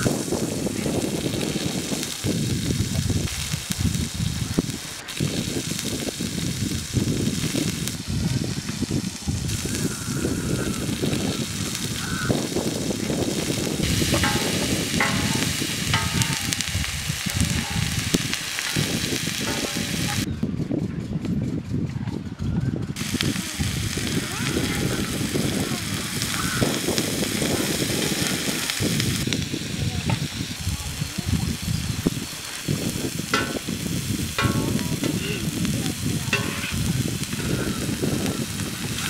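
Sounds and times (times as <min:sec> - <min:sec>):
onions sizzling on a griddle: 0:00.0 - 0:20.3, 0:23.0 - 0:39.0
metal ladle scraping griddle: 0:09.5 - 0:20.3, 0:32.3 - 0:39.0
goose-like honks: 0:09.7 - 0:12.4, 0:26.3 - 0:26.7.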